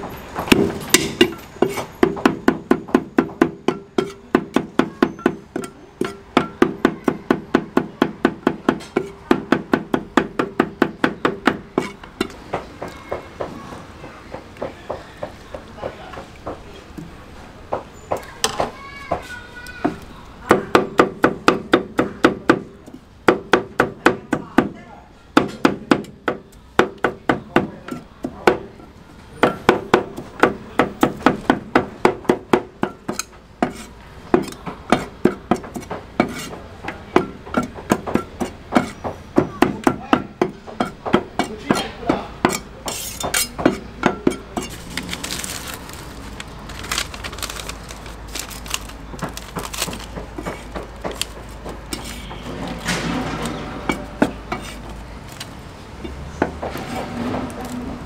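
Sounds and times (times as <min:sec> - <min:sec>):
cleavers chopping on a block: 0:00.4 - 0:13.6, 0:17.7 - 0:28.8, 0:29.4 - 0:44.8, 0:48.4 - 0:52.8, 0:53.4 - 0:55.0
cleaver scraping: 0:00.5 - 0:02.2, 0:08.8 - 0:09.3, 0:11.3 - 0:12.4, 0:32.9 - 0:55.6.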